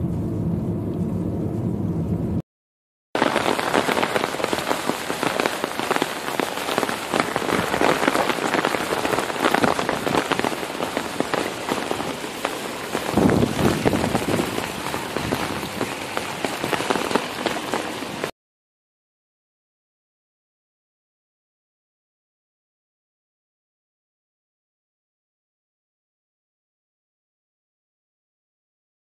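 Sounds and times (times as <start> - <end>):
heavy rain on pavement: 3.2 - 18.3
low rush of rain: 3.2 - 18.3.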